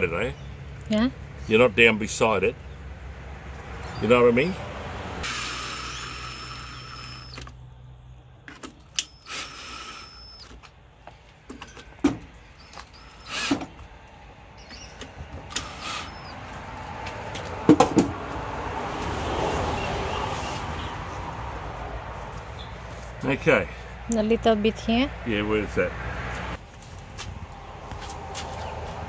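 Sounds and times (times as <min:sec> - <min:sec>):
small motor whirring: 0:05.2 - 0:07.6, 0:09.0 - 0:10.6, 0:12.6 - 0:13.6, 0:15.5 - 0:16.4.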